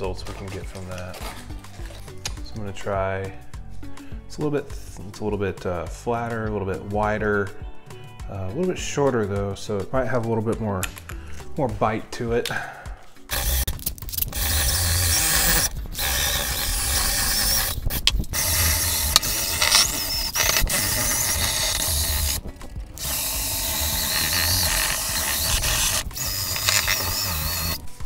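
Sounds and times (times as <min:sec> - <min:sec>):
drill wire brush scrubbing metal: 0:13.3 - 0:27.8.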